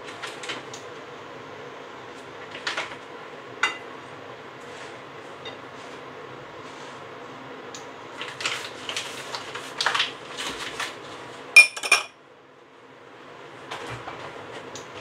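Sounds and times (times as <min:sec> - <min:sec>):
foil wrapper crinkling: 0:08.2 - 0:11.2
utensil clinking against cookware: 0:11.6 - 0:12.1.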